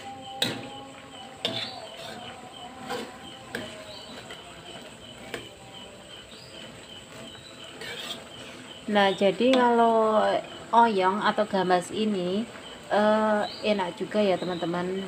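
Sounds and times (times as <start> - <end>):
spatula scraping food in wok: 0.0 - 9.9
spatula knocking against wok: 0.3 - 8.6.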